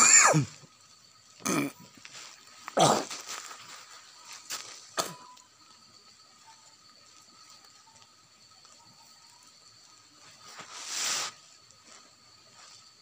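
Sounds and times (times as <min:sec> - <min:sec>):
short burst of hiss: 0:10.6 - 0:11.5.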